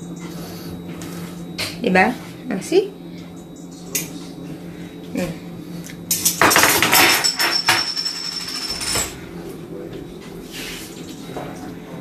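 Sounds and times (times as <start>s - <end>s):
utensils and dishes clattering: 6.1s - 9.2s.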